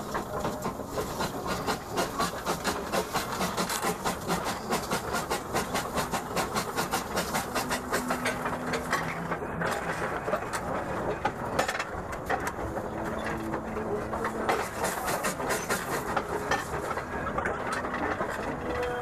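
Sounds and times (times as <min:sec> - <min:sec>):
steam hiss: 0:00.0 - 0:09.0, 0:14.6 - 0:16.8
steam locomotive chuffing: 0:00.0 - 0:19.0.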